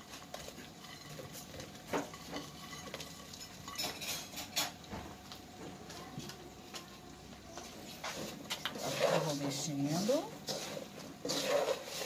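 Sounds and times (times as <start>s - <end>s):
bowl and spatula clinking on pan: 0.8s - 4.8s.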